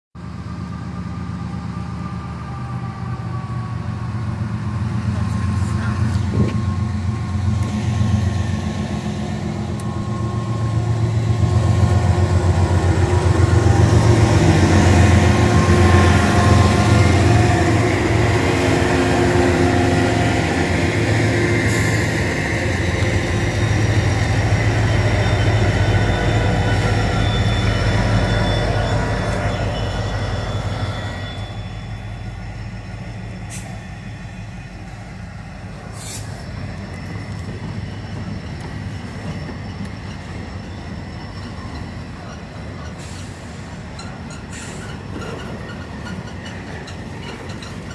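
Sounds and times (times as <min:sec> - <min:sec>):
diesel locomotive engine rumble: 0:00.1 - 0:47.9
high wheel squeal: 0:09.6 - 0:47.9.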